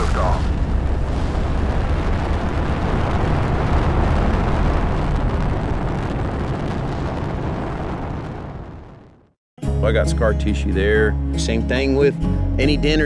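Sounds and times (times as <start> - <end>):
rocket launch roar: 0.0 - 9.4.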